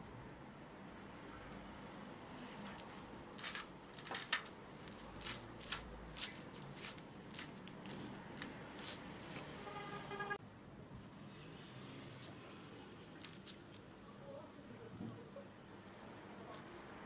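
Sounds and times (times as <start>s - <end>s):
puff pastry crackling: 0.0s - 9.6s, 12.0s - 14.5s.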